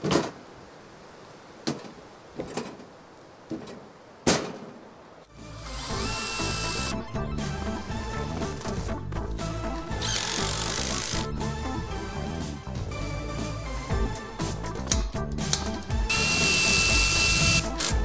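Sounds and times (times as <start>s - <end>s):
cordless drill driving screw: 5.7s - 6.9s, 10.0s - 11.3s, 16.1s - 18.0s.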